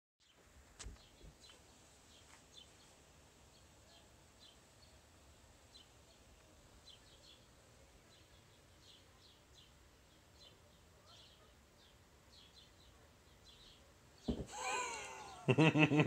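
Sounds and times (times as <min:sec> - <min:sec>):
faint knocks: 0:14.3 - 0:14.5.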